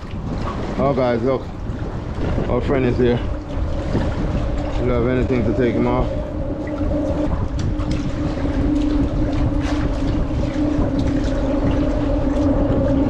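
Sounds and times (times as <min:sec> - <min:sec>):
rumble of wind and water: 0:00.0 - 0:13.0
engine drone: 0:02.8 - 0:13.0.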